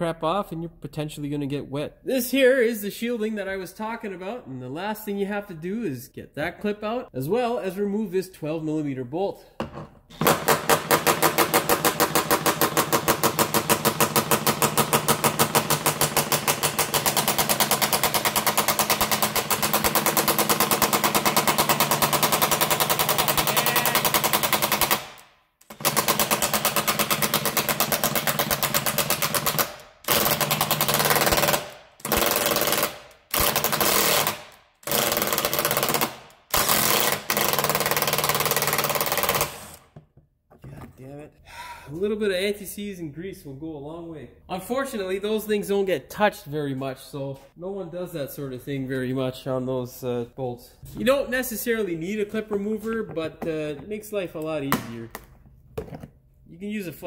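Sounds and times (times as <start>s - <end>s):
impact wrench hammering on bolt: 10.1s - 40.0s.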